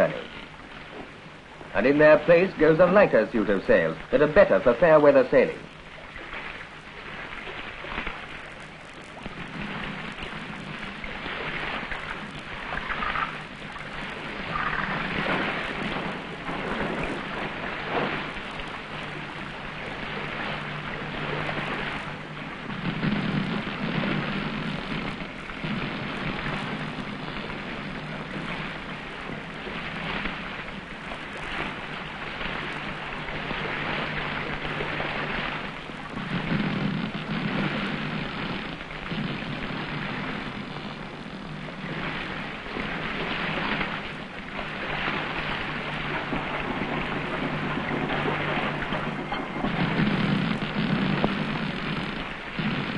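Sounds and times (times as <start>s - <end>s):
wind rushing over sails: 0.0s - 52.9s
loose canvas crackling: 35.2s - 52.9s.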